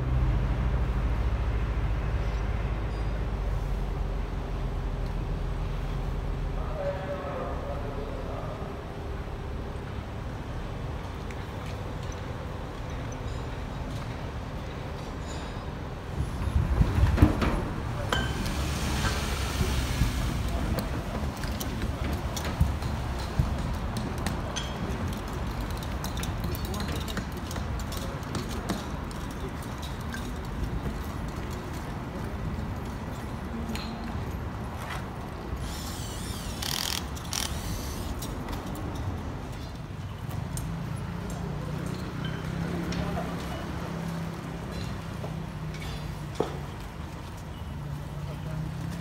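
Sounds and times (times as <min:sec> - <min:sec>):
road traffic rumble: 0:00.0 - 0:49.0
ratchet-like rasping bursts: 0:35.6 - 0:38.3.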